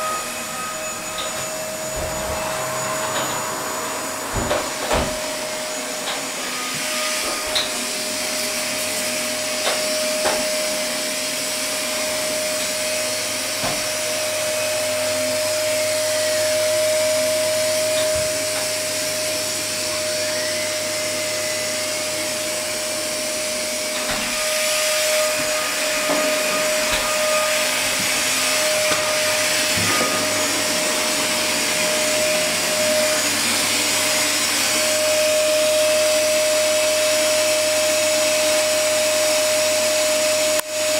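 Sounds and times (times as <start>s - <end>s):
electric motor and fan whirring: 0.0s - 40.9s.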